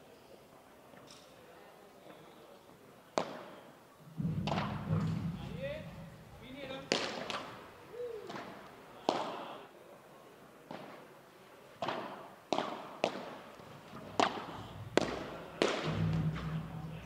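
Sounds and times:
ball bouncing off walls: 4.2s - 5.4s, 13.9s - 17.0s
padel ball struck with rackets: 14.2s - 16.6s.

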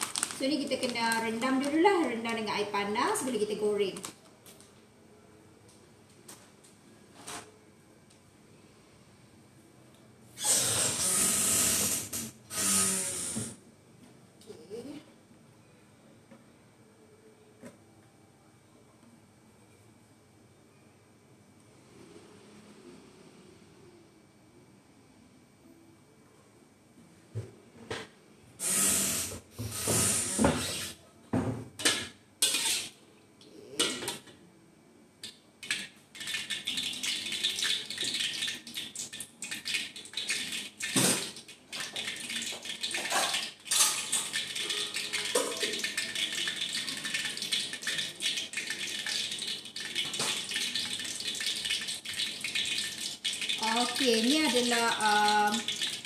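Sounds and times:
oil sizzling in wok: 32.4s - 33.0s, 35.6s - 56.0s.

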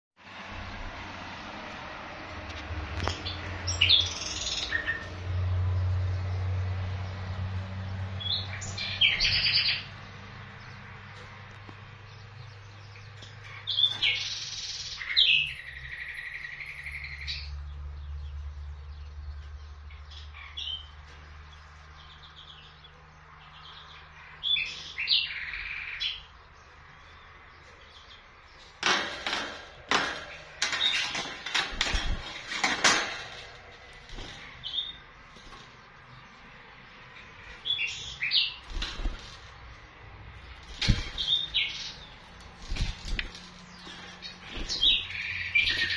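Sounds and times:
nightingale singing: 8.2s - 9.9s, 12.3s - 17.6s, 40.8s - 45.9s
sharp clicks and rattles: 28.6s - 36.4s, 38.6s - 45.9s.

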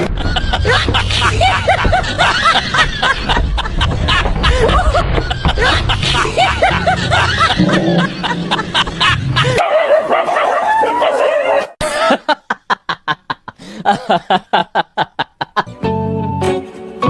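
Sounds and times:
rapid laughing: 0.0s - 10.0s, 11.8s - 15.7s
background music: 15.6s - 17.0s.

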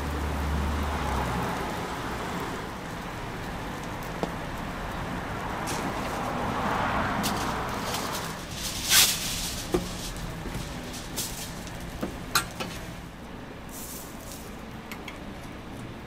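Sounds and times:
metal utensils clinking on griddle: 7.2s - 12.8s.

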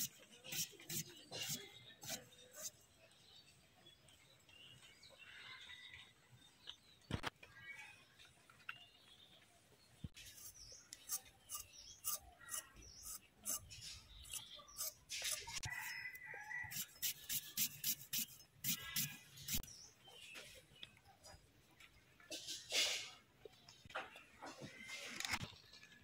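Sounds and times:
short scraping strokes: 16.7s - 19.6s.

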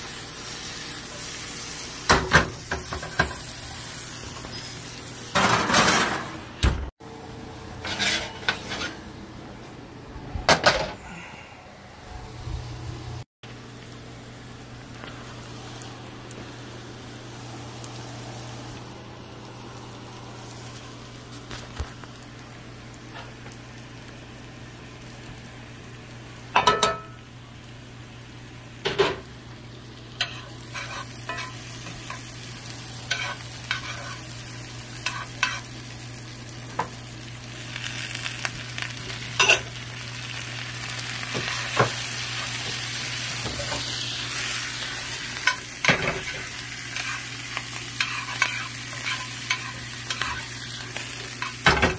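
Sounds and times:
food sizzling in skillet: 0.0s - 6.1s, 13.5s - 51.9s
metal spoon scraping pan: 7.8s - 9.0s.

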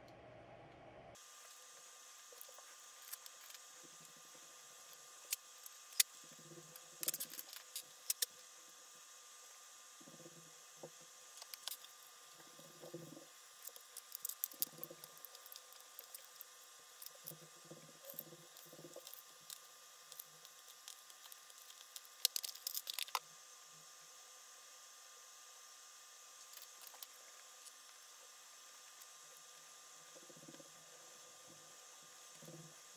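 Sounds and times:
small screws clicking: 7.0s - 8.3s, 13.6s - 23.2s.

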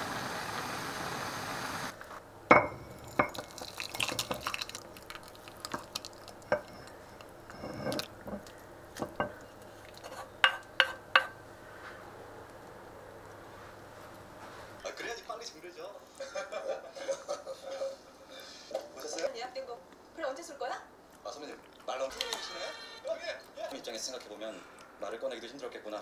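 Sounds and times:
steady hiss: 0.0s - 2.0s
soup pouring into cup: 2.9s - 10.3s
liquid dripping and splashing: 3.3s - 7.3s
ladle clinking against pot: 6.5s - 11.4s.

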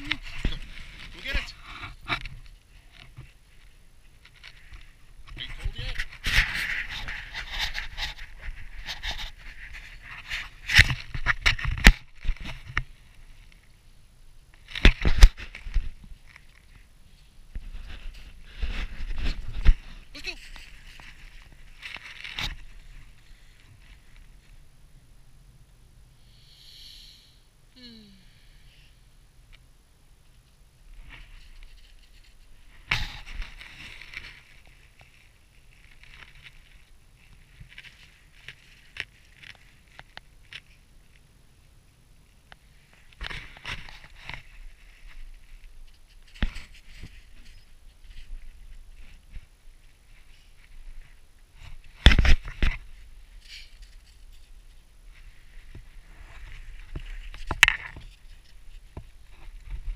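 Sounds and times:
camera knocks and scrapes on snow: 5.3s - 12.9s, 14.7s - 16.2s, 17.5s - 23.2s, 31.0s - 34.7s, 46.2s - 49.5s, 51.6s - 54.4s, 55.6s - 59.9s.

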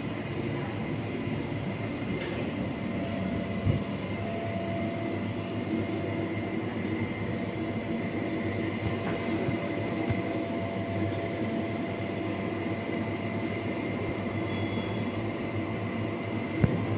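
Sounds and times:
air conditioning machinery humming: 0.0s - 16.9s
constant whine: 0.0s - 16.9s.

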